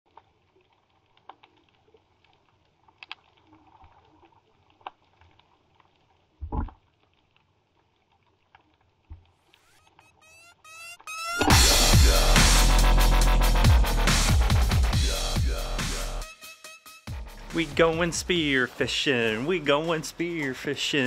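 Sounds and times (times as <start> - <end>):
dubstep music: 9.6 - 21.0.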